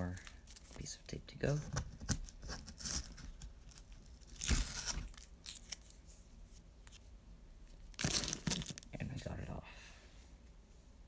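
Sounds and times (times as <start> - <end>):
tape crackling: 0.0 - 9.0
tape ripping: 1.6 - 6.0, 7.9 - 8.9.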